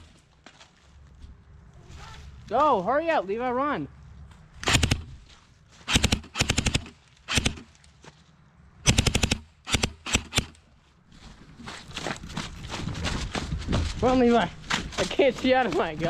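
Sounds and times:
airsoft gun rapid bursts: 4.6 - 5.1, 5.9 - 7.7, 8.9 - 10.6.

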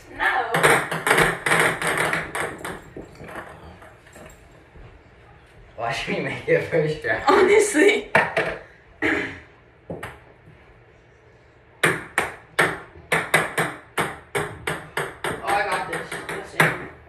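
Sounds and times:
ping pong ball bouncing: 0.5 - 3.8, 9.9 - 10.3, 11.8 - 17.0.

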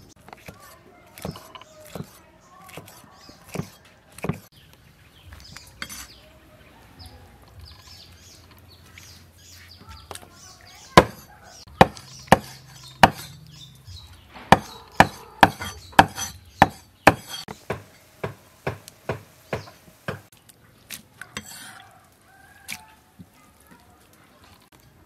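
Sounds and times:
cleaver chopping on wooden block: 1.2 - 4.5, 11.0 - 13.4, 14.4 - 20.3.

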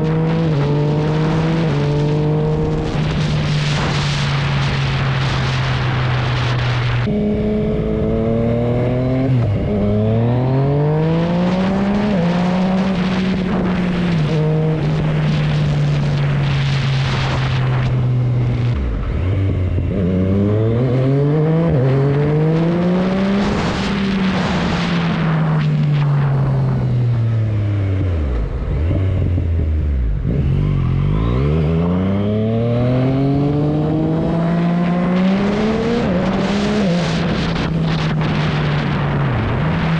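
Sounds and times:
motorcycle engine revving: 0.0 - 39.9
rushing wind hiss: 2.6 - 7.1.

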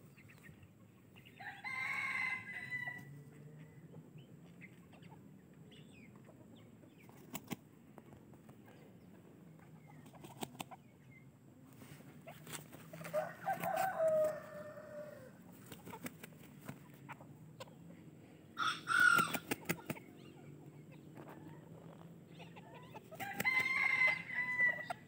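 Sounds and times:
rooster crowing: 1.4 - 3.2, 13.0 - 15.4, 18.6 - 19.5, 23.2 - 25.0.

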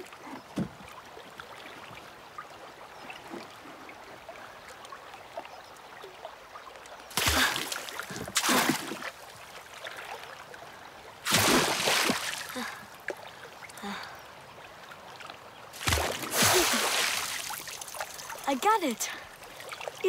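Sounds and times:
water lapping against raft: 0.0 - 20.0
loud water splashes: 7.1 - 9.2, 11.2 - 12.8, 15.7 - 20.0.

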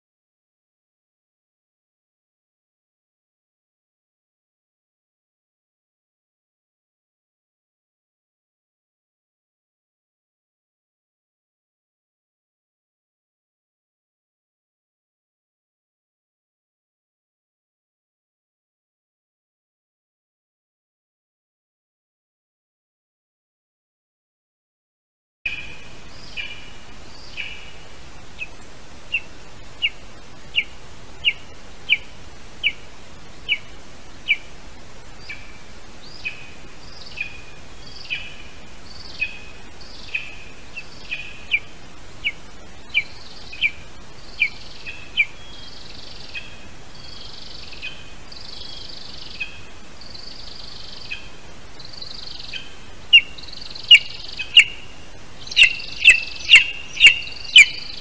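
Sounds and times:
eagle chick piping calls: 28.4 - 32.8, 33.4 - 34.5, 52.0 - 58.0
rough bird calls: 35.2 - 58.0.

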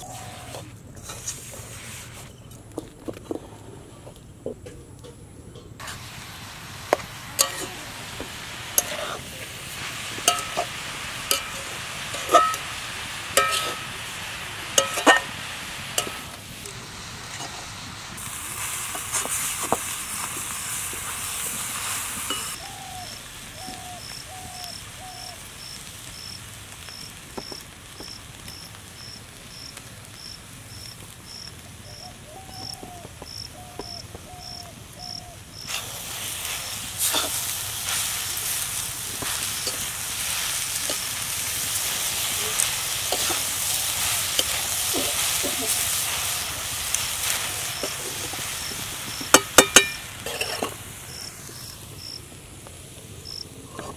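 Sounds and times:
hissing: 5.8 - 27.0, 35.6 - 51.8
metal spatula scraping iron pan: 8.8 - 9.2, 12.2 - 12.6, 13.4 - 13.9, 14.8 - 15.4, 49.4 - 50.8
insect chirping: 22.3 - 35.7, 43.3 - 50.0, 51.1 - 52.2, 53.2 - 53.4.

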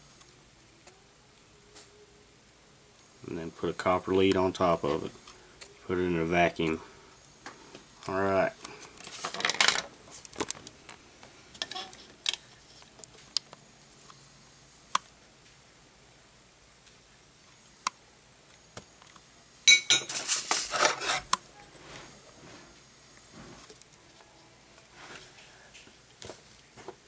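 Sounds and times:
metal spoon clinking on plate: 19.7 - 20.2.

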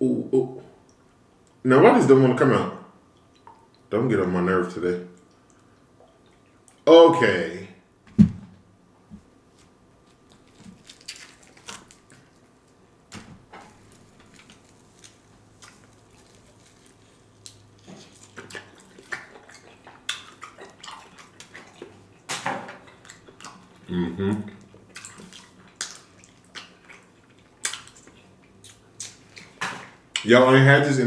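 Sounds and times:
crunchy bites: 10.1 - 12.3
wet chewing and lip smacks: 13.8 - 30.3.

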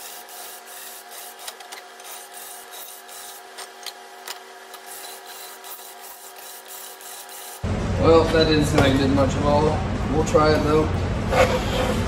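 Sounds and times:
drill bit scraping metal: 0.0 - 4.0, 4.7 - 7.6.

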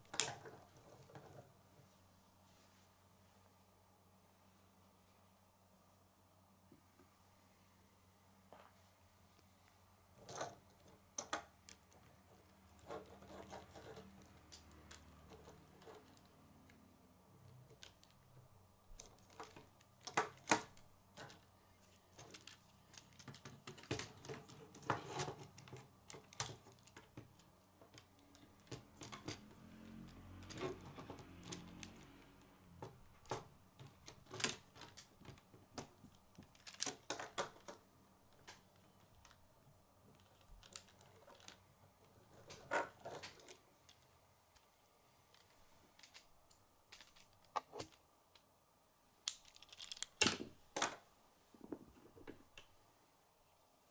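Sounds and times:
plastic pieces clicking together: 17.5 - 18.3, 18.9 - 21.5, 22.1 - 29.5, 33.1 - 39.4, 40.1 - 41.7, 45.3 - 48.5, 49.2 - 51.0.

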